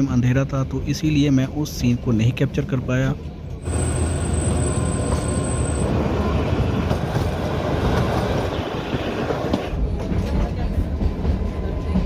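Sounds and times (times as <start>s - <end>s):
train wheels rumbling on rails: 3.5s - 12.0s.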